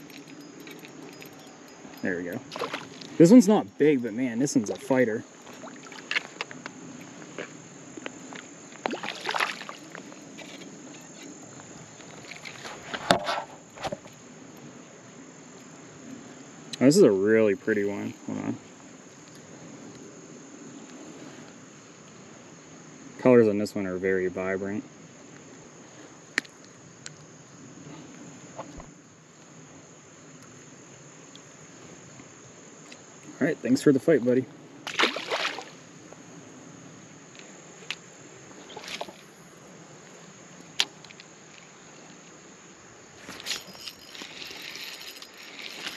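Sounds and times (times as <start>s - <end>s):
crickets chirring: 0.0s - 45.9s
insects trilling: 0.0s - 45.9s
fish splashing at water surface: 8.9s - 10.0s, 34.9s - 35.8s.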